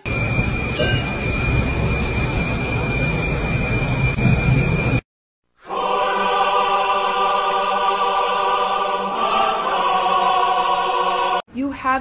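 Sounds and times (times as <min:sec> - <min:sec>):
choir holding sustained chord: 0:05.6 - 0:11.4.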